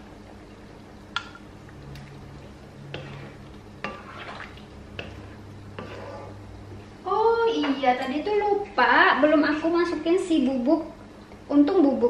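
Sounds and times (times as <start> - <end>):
steady low hum: 0.0 - 12.0
wooden spatula scraping a wok: 2.8 - 6.5.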